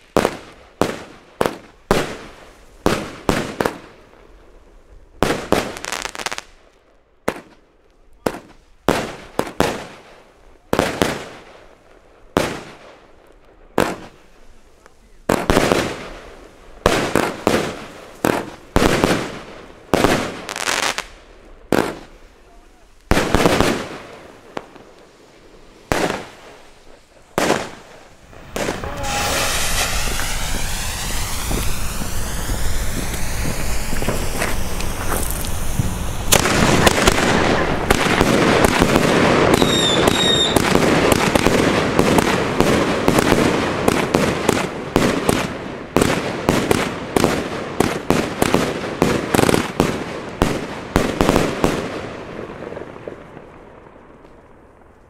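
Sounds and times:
firework hissing and crackling: 0.0s - 6.7s, 7.3s - 55.0s
rapid firework reports: 25.9s - 45.4s.

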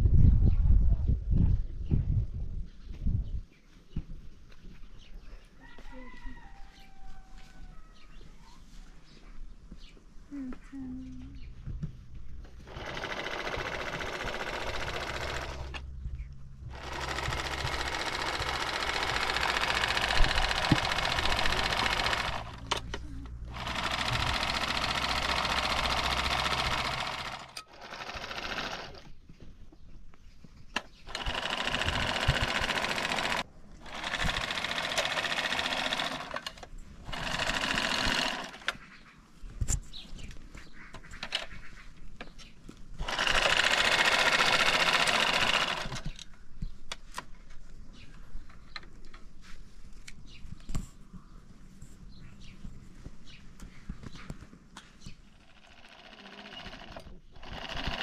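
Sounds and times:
sewing machine stitching: 12.6s - 15.8s, 16.7s - 29.1s, 31.1s - 38.8s, 43.0s - 46.2s, 55.4s - 58.0s.

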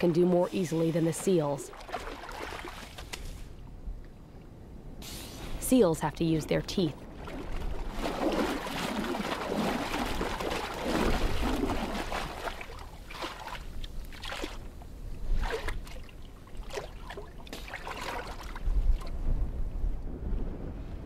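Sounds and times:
water sloshing and splashing: 0.0s - 3.6s, 6.5s - 19.4s.

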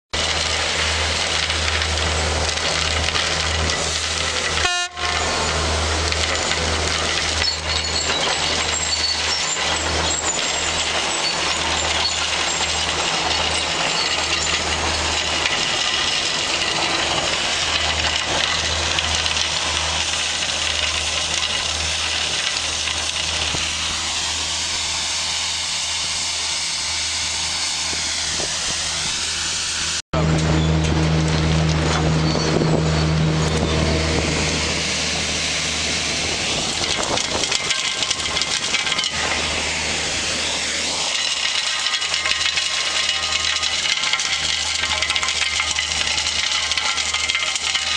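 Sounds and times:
vacuum machine humming and rushing: 9.4s - 45.6s.

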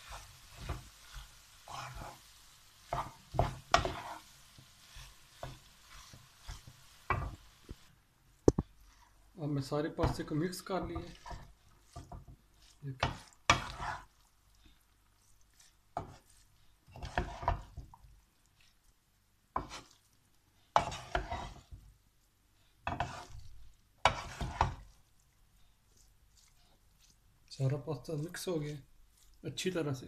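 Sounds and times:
wooden spoon scraping pan: 0.0s - 7.8s, 8.6s - 18.0s, 19.5s - 20.1s, 20.7s - 21.9s, 22.8s - 25.2s
pasta rustling: 0.0s - 30.0s.

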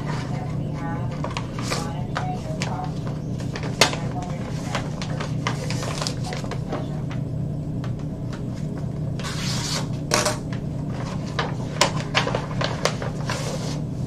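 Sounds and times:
paper rustling and crinkling: 0.0s - 7.2s, 10.9s - 14.0s
steady low hum: 0.0s - 14.0s.

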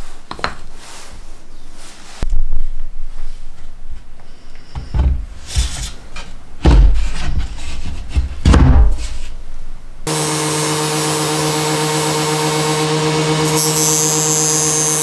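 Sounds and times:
hollow wooden knocks: 6.6s - 9.0s
table saw motor running: 10.1s - 15.0s.

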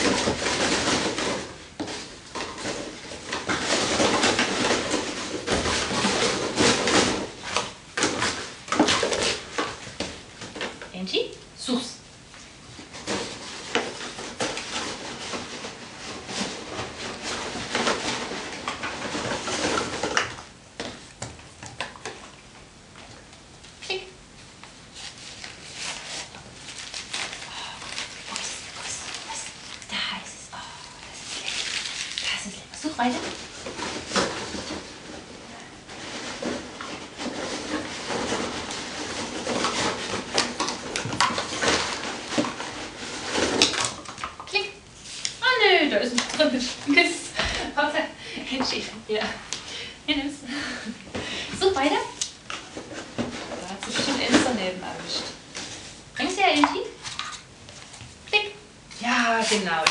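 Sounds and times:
cardboard rolls rattling in crate: 0.0s - 10.9s, 12.8s - 21.1s, 31.3s - 49.4s, 50.4s - 57.5s.

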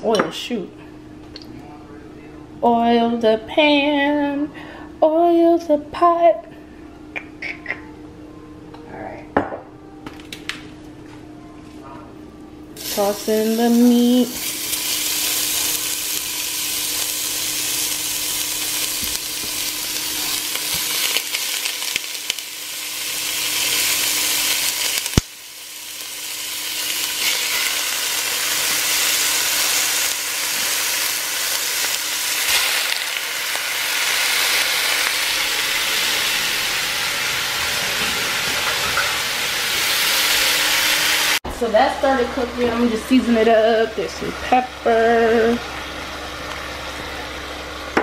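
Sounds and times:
ground beef sizzling in oil: 12.8s - 41.4s.

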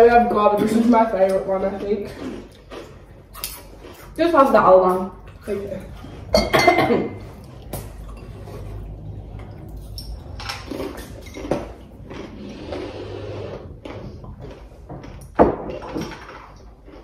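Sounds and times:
glass bottles clicking and knocking: 6.3s - 7.0s.

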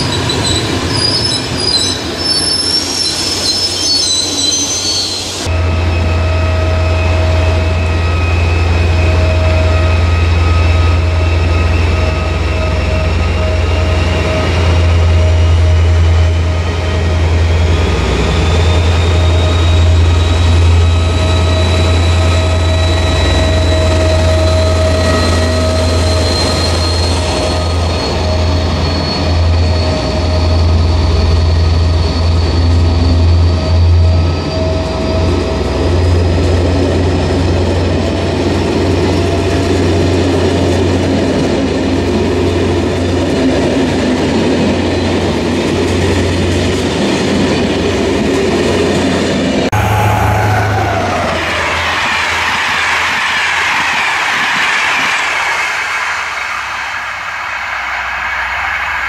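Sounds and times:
diesel locomotive engine: 0.0s - 59.0s
high engine whine: 49.5s - 52.4s.

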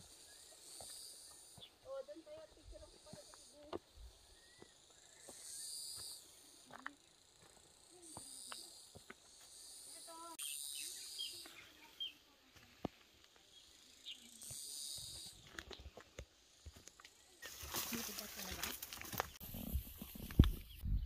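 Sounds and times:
insects buzzing: 0.0s - 20.4s
bird warbling and chirping: 8.0s - 12.2s
footsteps on leaves: 16.8s - 19.4s.

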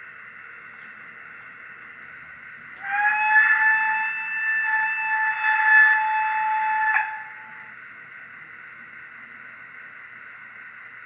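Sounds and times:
steady hiss: 0.0s - 11.0s
high-pitched whistle: 2.8s - 7.8s.

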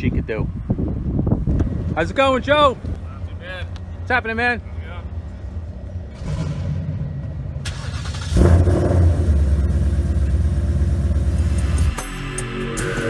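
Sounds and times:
car engine starting and idling: 4.3s - 13.0s.

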